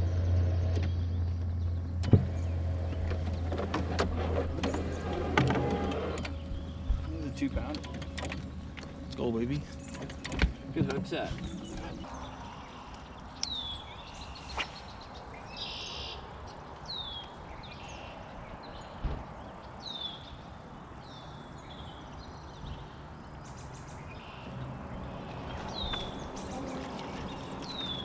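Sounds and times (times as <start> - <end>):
songbirds whistling: 9.5 - 19.1, 21.0 - 28.0.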